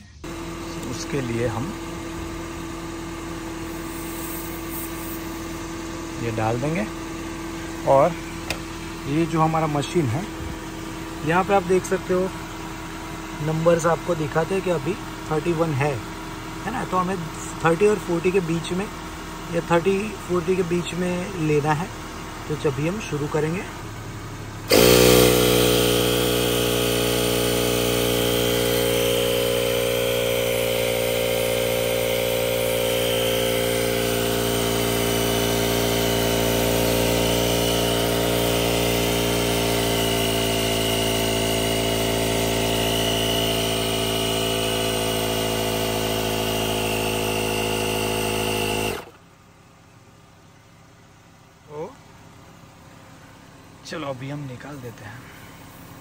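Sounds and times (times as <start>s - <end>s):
air compressor running: 0.0s - 49.4s, 51.8s - 56.0s.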